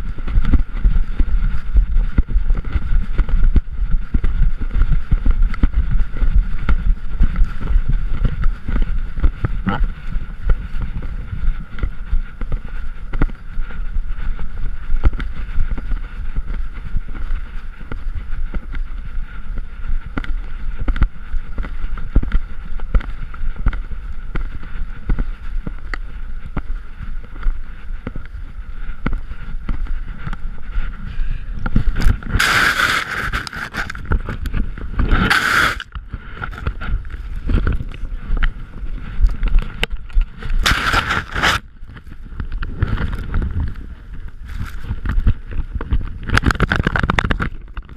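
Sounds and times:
wind buffeting camera: 0.0 - 47.9
fur and snow brushing camera: 29.3 - 37.4, 40.5 - 41.6.

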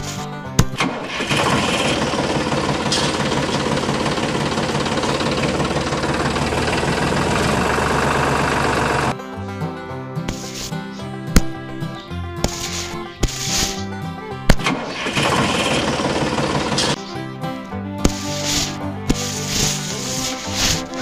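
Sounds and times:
toy motor rattling: 12.5 - 13.9, 18.1 - 21.0.

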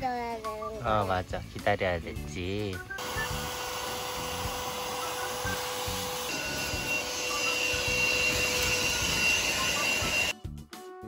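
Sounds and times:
small motor whooshing and whining: 3.0 - 10.3.

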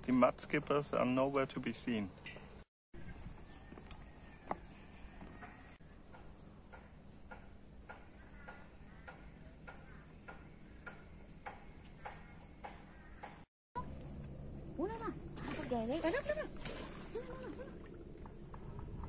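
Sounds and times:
faint bird chirps: 1.9 - 13.4
thin high repeating chirp: 5.8 - 13.5.

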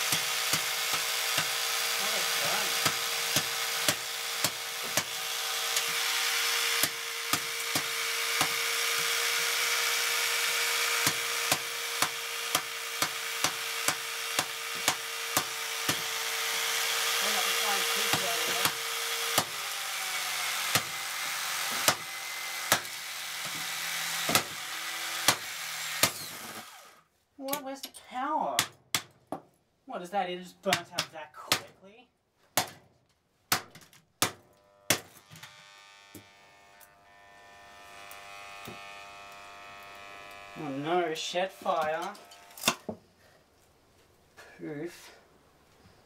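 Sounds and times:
jigsaw motor running: 0.0 - 27.0, 34.5 - 41.0, 41.7 - 42.7.

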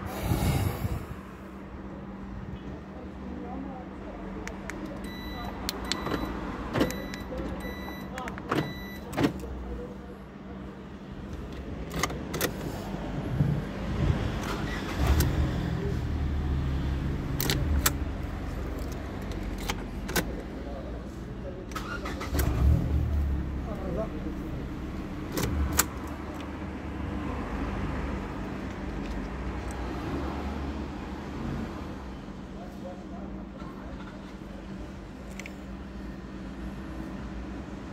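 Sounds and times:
low hum inside car: 0.0 - 13.9
keys and ignition clicking: 4.5 - 9.6, 11.3 - 12.7, 17.3 - 20.5, 21.7 - 22.6, 25.3 - 26.5, 35.2 - 35.7.

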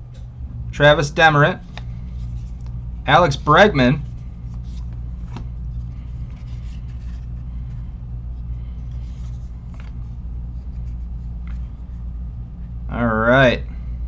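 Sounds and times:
low hum: 0.0 - 14.0
trading cards tapping and rustling: 1.6 - 7.9, 8.7 - 11.9.

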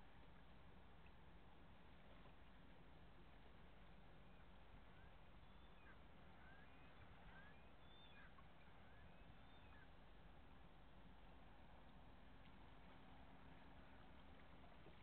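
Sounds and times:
low steady hum: 0.0 - 15.0
faint bird chirps: 4.1 - 10.1.

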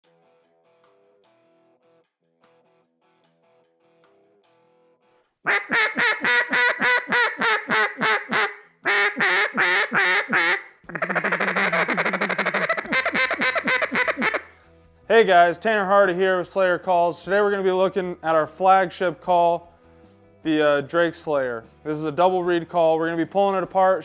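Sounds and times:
duck call quacks: 5.5 - 14.5
duck call rapid chatter: 5.5 - 14.5.

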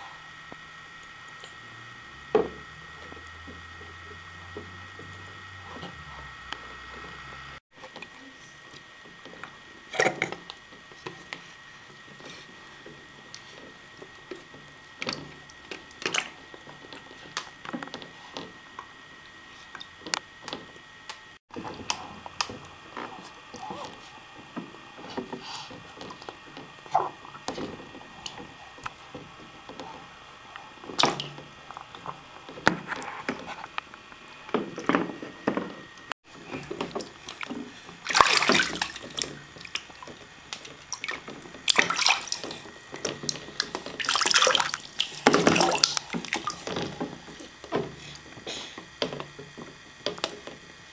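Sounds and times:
bathwater splashing and dripping: 30.8 - 32.7, 36.4 - 48.3.

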